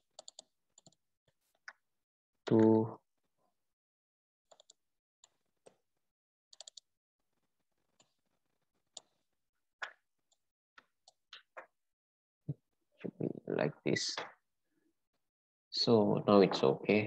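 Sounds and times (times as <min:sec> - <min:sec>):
computer mouse clicks: 0:04.5 - 0:05.8, 0:06.6 - 0:06.8.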